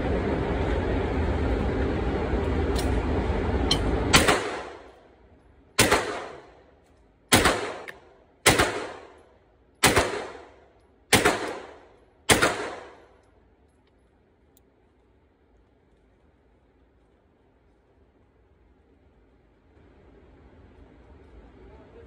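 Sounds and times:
steady rushing noise: 0:00.0 - 0:06.8
gunshots echoing indoors: 0:04.1 - 0:05.0, 0:05.8 - 0:06.7, 0:07.3 - 0:13.2.

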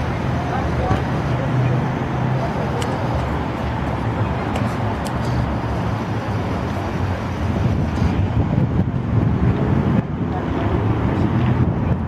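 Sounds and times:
outdoor city noise: 0:00.0 - 0:12.0
wind buffeting microphone: 0:03.2 - 0:12.0.

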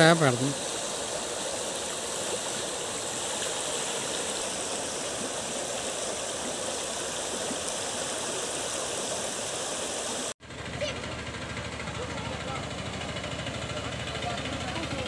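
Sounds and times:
floodwater rushing: 0:00.0 - 0:10.4.

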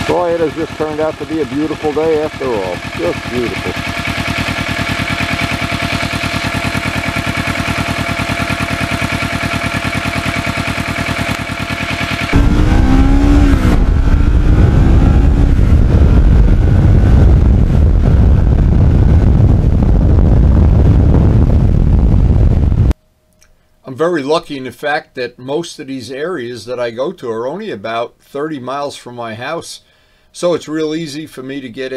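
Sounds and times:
motorcycle engine: 0:00.0 - 0:22.9
wind noise on microphone: 0:12.3 - 0:23.0.

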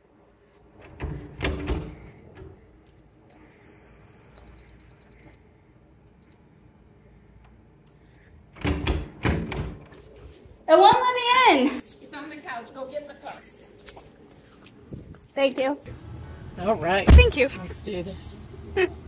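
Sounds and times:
electronic door lock beeping: 0:03.3 - 0:05.4.

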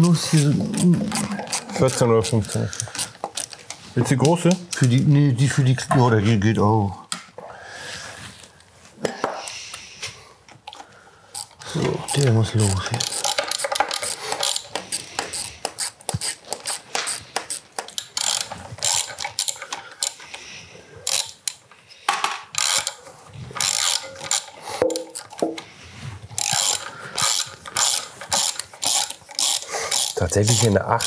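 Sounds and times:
ratchet wrench clicking: 0:00.0 - 0:03.6, 0:11.4 - 0:20.2, 0:21.0 - 0:21.6, 0:22.6 - 0:23.0, 0:23.6 - 0:25.4, 0:26.4 - 0:31.0.

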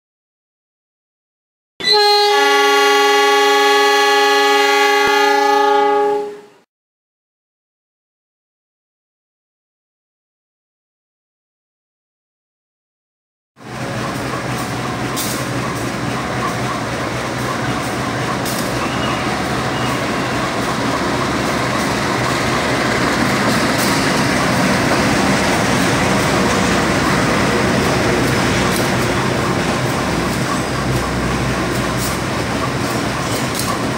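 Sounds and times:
diesel locomotive engine drone: 0:01.8 - 0:06.6, 0:13.6 - 0:33.9
train wheels rolling on rails: 0:13.6 - 0:33.9.

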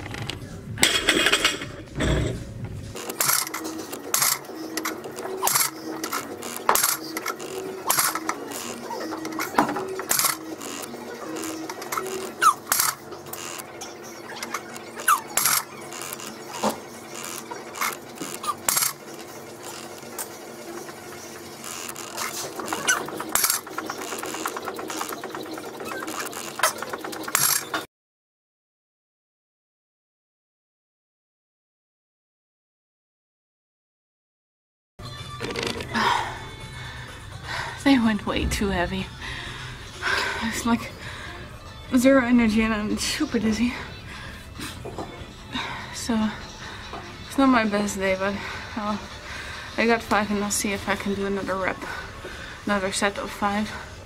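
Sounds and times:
barbell plates clicking and rattling: 0:00.1 - 0:02.4, 0:03.0 - 0:27.8
heavy low rumble: 0:36.8 - 0:44.5.

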